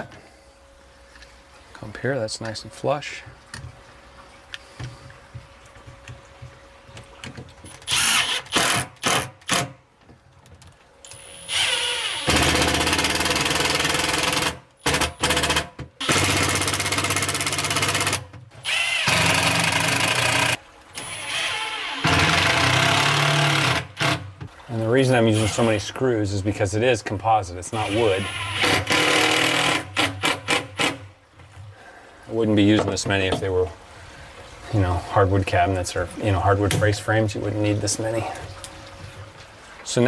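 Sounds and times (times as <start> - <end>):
cordless driver driving screws: 7.8 - 9.6.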